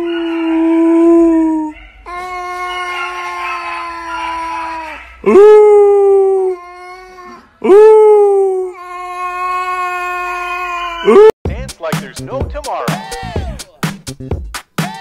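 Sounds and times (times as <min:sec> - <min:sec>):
animal howling: 0:00.0 - 0:06.6.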